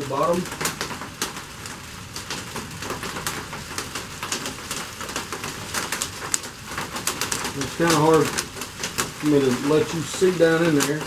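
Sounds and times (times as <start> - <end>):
light clicks and taps: 2.2 - 11.0.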